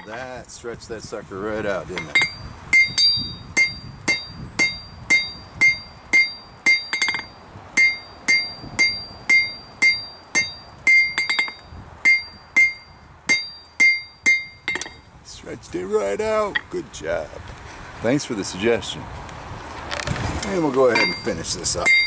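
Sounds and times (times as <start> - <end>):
hammer striking steel on anvil: 2.0 - 15.1, 20.6 - 22.0.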